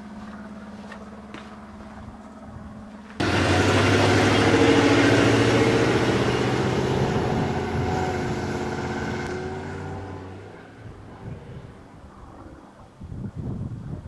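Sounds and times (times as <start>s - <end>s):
pickup truck driving past: 3.2s - 11.9s.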